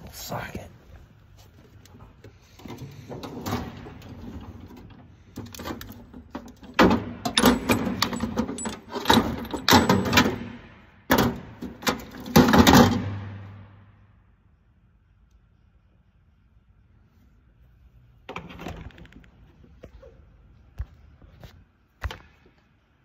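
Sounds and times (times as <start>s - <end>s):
metal tools clinking and rattling: 5.5s - 10.4s.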